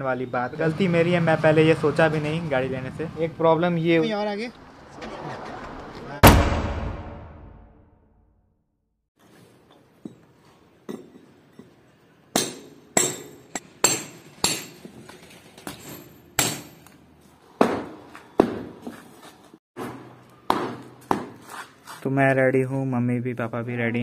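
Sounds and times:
hammer striking brick wall: 12.3s - 15.0s, 15.6s - 17.0s, 17.6s - 18.8s, 19.8s - 21.4s.

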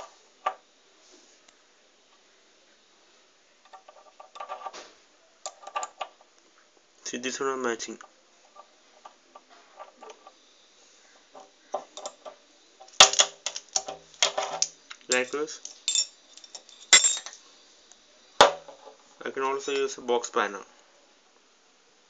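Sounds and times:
metal spanners clinking: 12.8s - 17.4s.

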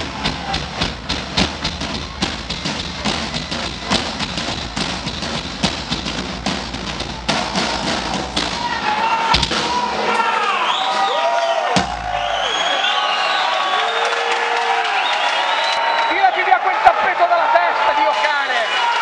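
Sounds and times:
floor tom hits: 0.0s - 8.7s, 9.3s - 9.9s, 11.7s - 12.3s
live band stage noise: 0.0s - 19.0s.

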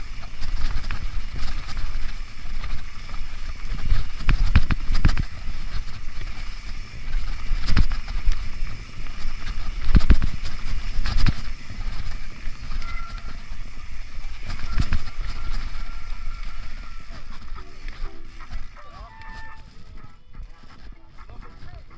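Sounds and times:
bike knocking and rattling on bumps: 0.0s - 21.9s
bike tyres rumbling on trail: 0.0s - 21.9s
wind on microphone: 0.0s - 21.9s.

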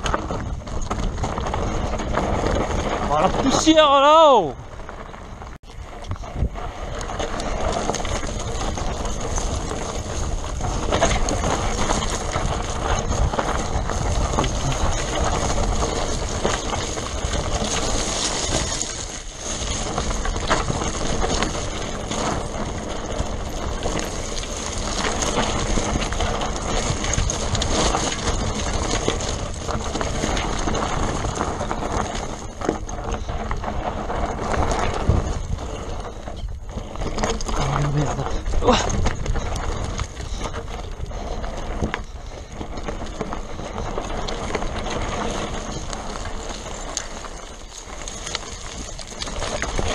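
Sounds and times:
bike rattling over bumps: 0.0s - 49.9s
bike tyres crunching over stones: 0.0s - 49.9s.

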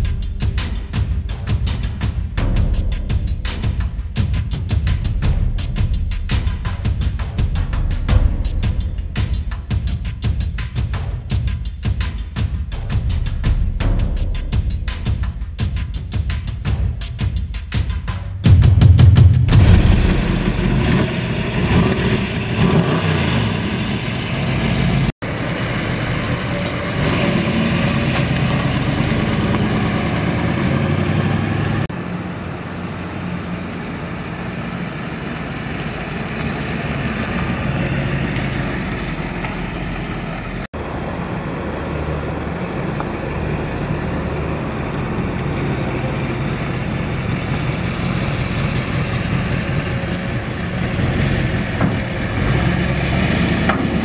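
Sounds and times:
vee eight engine idling: 18.4s - 54.0s.

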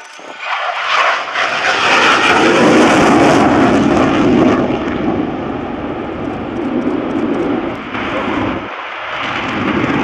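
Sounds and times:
fighter jet passing low: 0.0s - 10.0s.

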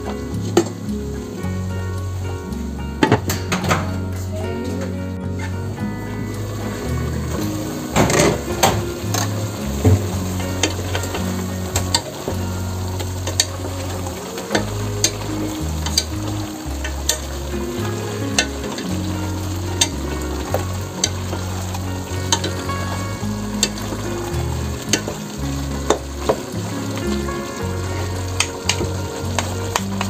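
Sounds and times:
beef and vegetables sizzling: 0.0s - 30.0s
wooden spatula stirring: 6.2s - 30.0s.

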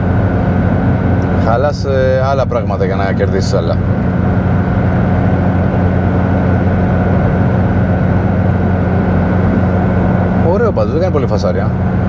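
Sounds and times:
car engine cabin drone: 0.0s - 12.0s.

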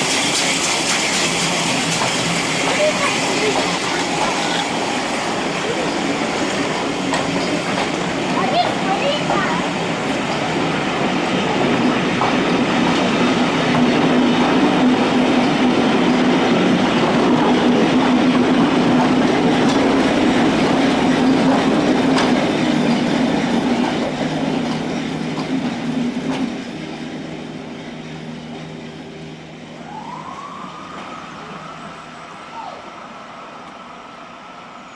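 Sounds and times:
train wheels clattering over rail joints: 0.0s - 27.1s
diesel locomotive engine: 0.0s - 34.9s.

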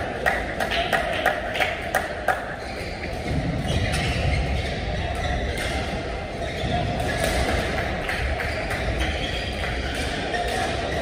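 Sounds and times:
sports hall rumble: 0.0s - 11.0s
faint voices: 1.8s - 11.0s.

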